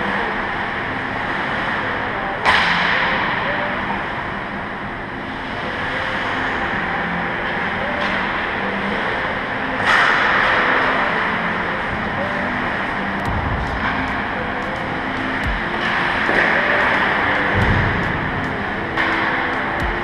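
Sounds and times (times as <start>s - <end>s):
hockey puck struck: 15.6s - 19.3s.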